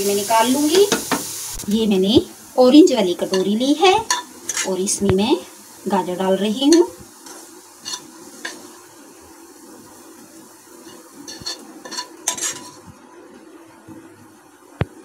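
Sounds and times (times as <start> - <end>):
spoon scraping a saucepan: 4.1 - 4.8, 6.7 - 8.7, 10.8 - 12.9.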